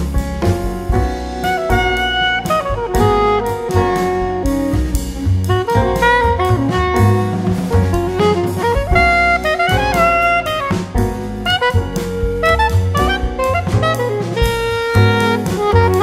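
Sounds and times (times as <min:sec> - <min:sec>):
drum beat: 0:00.0 - 0:16.0
instrumental melody: 0:00.0 - 0:16.0.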